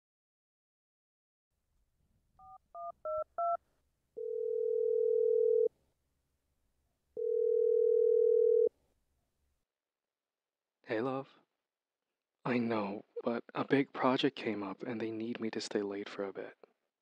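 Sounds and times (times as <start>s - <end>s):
telephone ringback tones: 4.2s - 5.7s, 7.2s - 8.7s.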